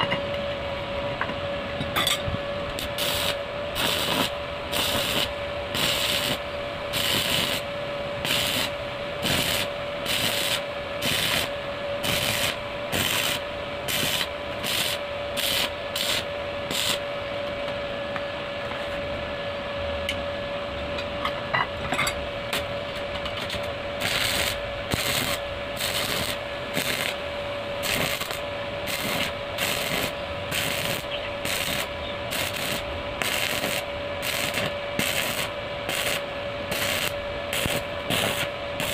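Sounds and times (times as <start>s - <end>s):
steady hum: 0.0s - 38.9s
welding arc crackling: 2.8s - 17.0s, 23.4s - 27.2s, 27.8s - 38.9s.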